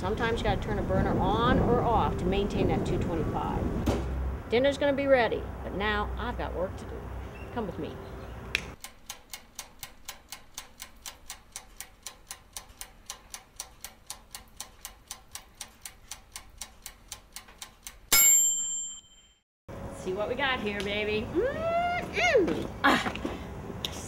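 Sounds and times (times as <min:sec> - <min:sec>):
rapid clock ticking: 0:08.8 - 0:18.1
bright bell ding: 0:18.1 - 0:19.4.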